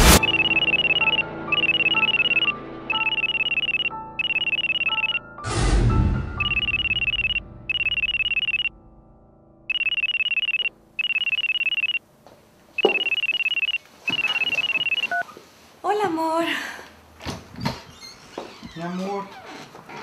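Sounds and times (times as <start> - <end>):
phone ringing trilling ringtone: 0.2 - 5.3, 6.4 - 8.7, 9.7 - 12.0, 12.8 - 15.2.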